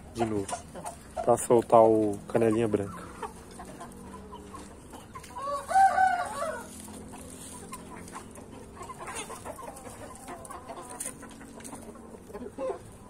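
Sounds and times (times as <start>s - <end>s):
chicken clucking: 0.0s - 13.0s
rooster crowing: 5.2s - 7.0s.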